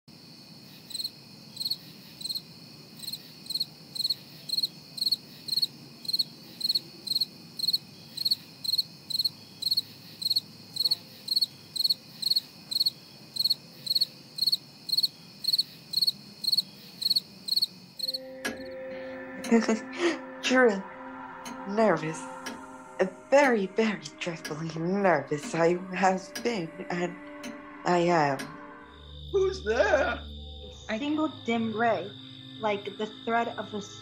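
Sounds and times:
cricket chirping: 0.1s - 18.8s, 25.5s - 34.0s.

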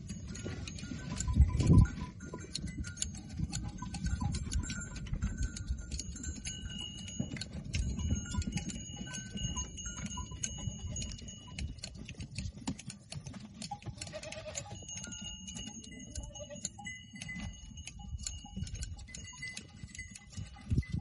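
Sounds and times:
shears snipping hair: 0.0s - 21.0s
goats bleating: 13.9s - 15.0s, 16.1s - 16.7s.

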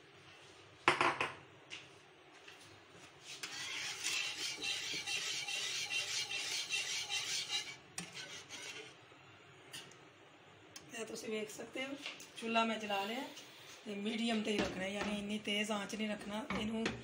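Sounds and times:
whisk scraping a frying pan: 3.2s - 9.0s.

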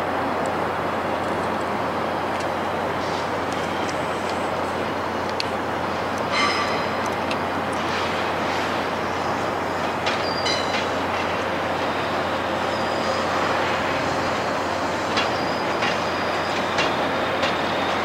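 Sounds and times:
train running noise: 0.0s - 18.0s
wheels clicking over rail joints: 1.2s - 12.0s, 13.6s - 18.0s
high wheel squeal: 6.3s - 7.0s, 10.2s - 10.9s, 12.5s - 16.8s.

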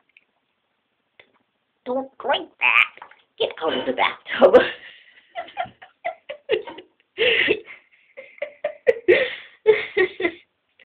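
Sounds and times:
person laughing: 4.6s - 10.4s.

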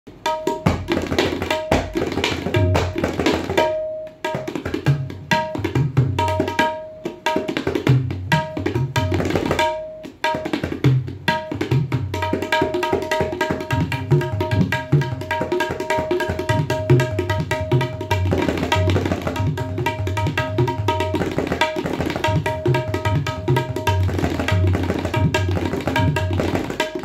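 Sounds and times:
fast tabla strokes: 0.1s - 27.0s.

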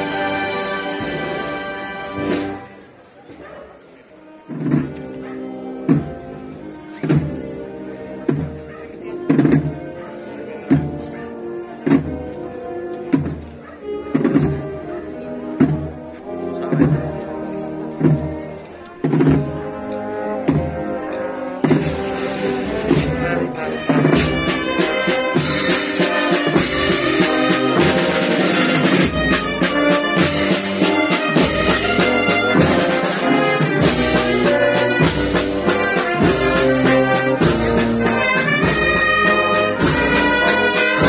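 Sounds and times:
brass band playing a march: 0.0s - 3.0s, 4.0s - 41.0s
steady drum beat: 21.6s - 41.0s.

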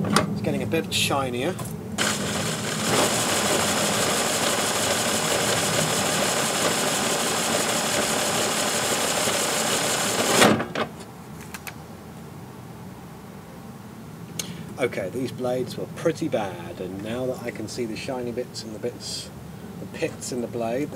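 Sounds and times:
power drill spinning mower reel: 2.0s - 10.5s.

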